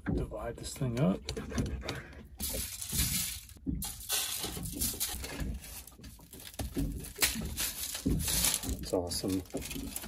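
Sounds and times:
aluminium foil crinkling: 2.4s - 10.0s.

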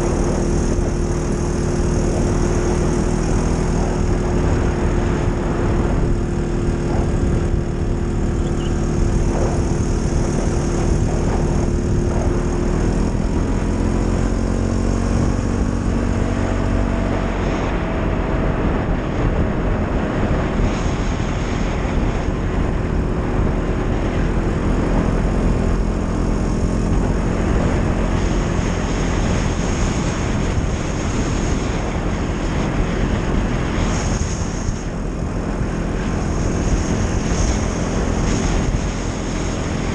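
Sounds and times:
atv engine running: 0.0s - 39.9s
wind and tyre noise: 0.0s - 39.9s.

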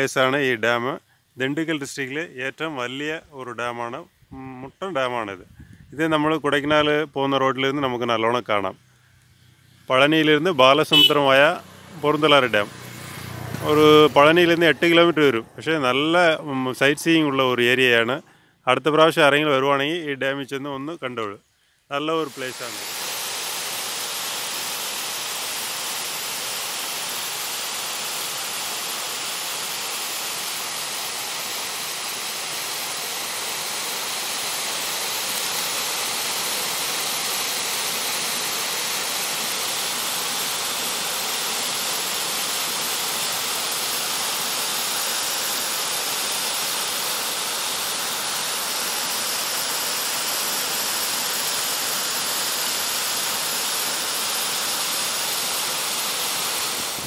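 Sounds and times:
small waterfall rushing: 10.7s - 15.4s, 22.0s - 57.0s.

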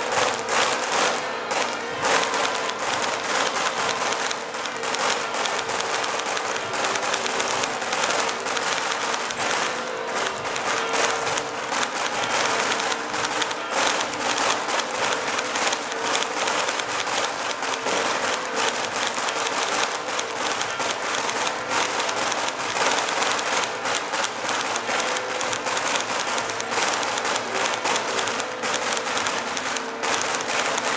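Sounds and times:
crowd applauding: 0.0s - 30.9s.

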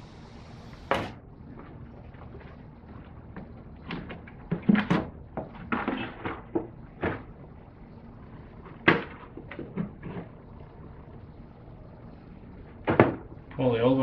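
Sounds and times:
plastic scraping: 1.6s - 7.4s
plastic cover knocks and clunks: 12.8s - 13.2s.

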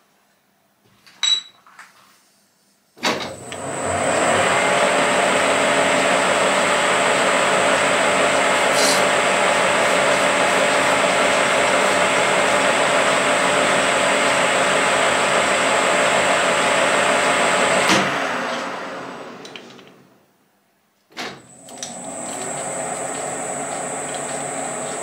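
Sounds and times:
lathe running with high whine: 3.5s - 19.4s, 21.6s - 25.0s
lathe motor clunk: 17.8s - 20.1s, 21.2s - 25.0s.

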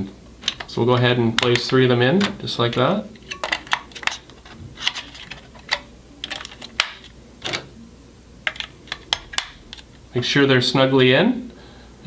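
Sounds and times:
batteries clicking into compartment: 0.4s - 7.7s, 8.5s - 9.9s.

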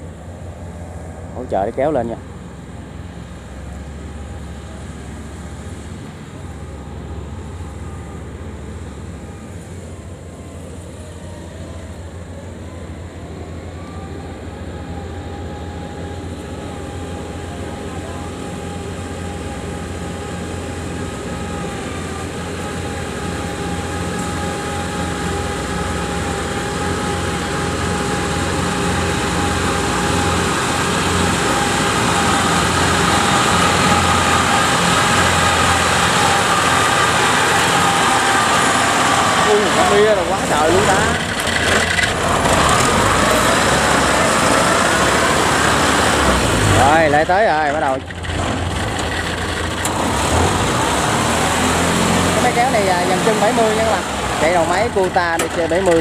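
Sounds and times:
tracked tractor engine running: 0.0s - 56.0s.

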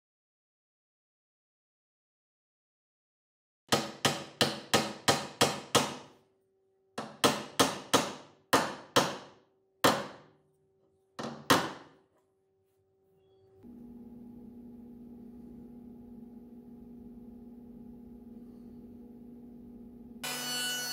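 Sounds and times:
machine hum: 13.2s - 20.9s.

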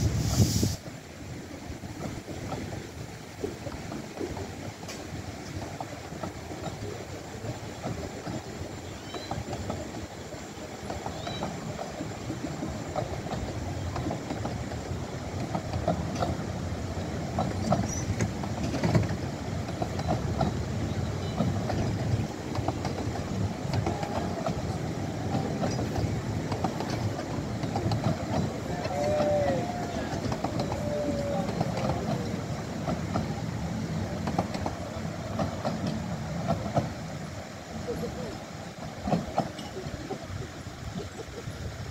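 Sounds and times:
train wheels rumbling on rails: 0.0s - 41.9s.

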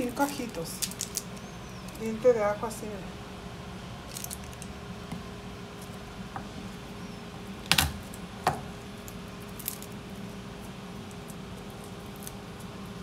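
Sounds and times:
garlic skin crackling: 0.0s - 2.2s, 4.0s - 4.8s, 8.9s - 13.0s
steady low hum: 0.0s - 13.0s.

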